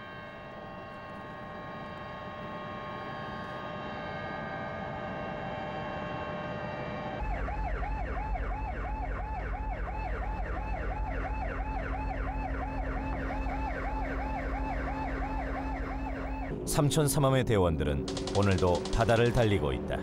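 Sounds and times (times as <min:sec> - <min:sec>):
electronic siren yelping: 0:07.1 - 0:16.6.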